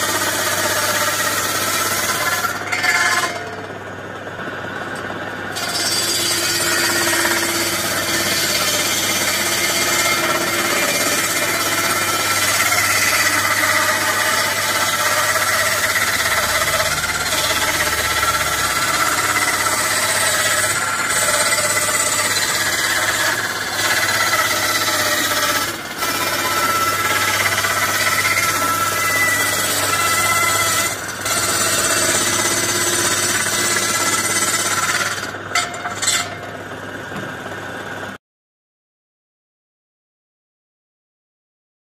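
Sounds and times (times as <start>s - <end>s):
table saw cutting wood: 0.0s - 3.9s, 4.7s - 38.0s.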